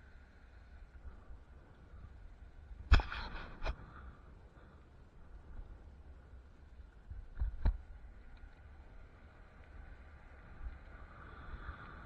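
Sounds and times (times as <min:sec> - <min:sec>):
tire rolling noise: 0:00.0 - 0:12.0
wind rumble: 0:00.0 - 0:12.0.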